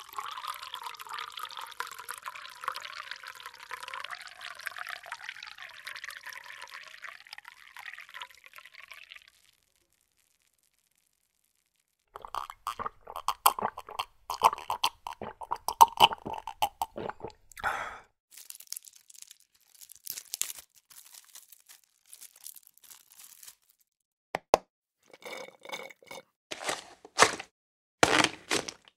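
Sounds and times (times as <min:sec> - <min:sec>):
slurping through straw: 0:12.2 - 0:18.0
wet gulping: 0:12.2 - 0:18.1
carton being crumpled: 0:18.3 - 0:24.0, 0:26.5 - 0:28.9
straw wrapper rustling: 0:18.3 - 0:24.0, 0:26.5 - 0:28.9.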